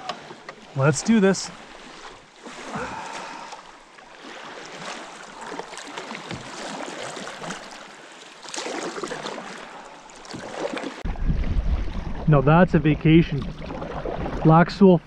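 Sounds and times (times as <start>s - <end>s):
paddles dipping through water: 0.0s - 14.6s
water lapping at hull: 0.0s - 15.0s
loud splash: 8.4s - 12.6s.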